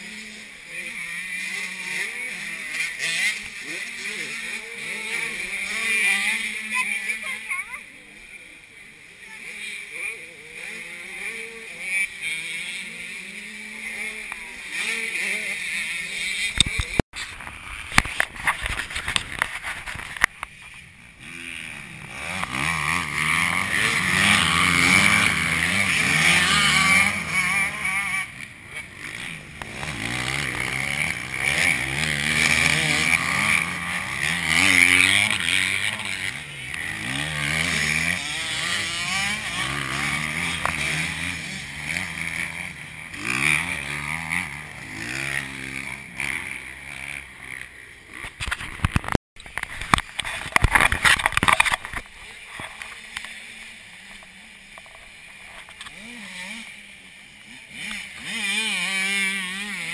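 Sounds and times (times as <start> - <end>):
dirt bike engines revving: 0.0 - 59.9
rough crackling noise bursts: 16.5 - 27.3, 47.5 - 56.0.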